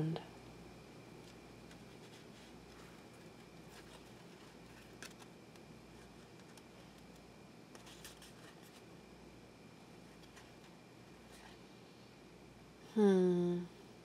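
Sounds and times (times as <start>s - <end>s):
cards shuffling and clicking: 1.2s - 5.3s.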